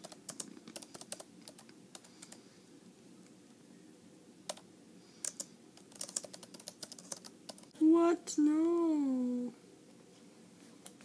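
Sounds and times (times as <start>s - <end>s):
laptop keyboard typing: 0.0s - 2.4s, 5.2s - 7.8s.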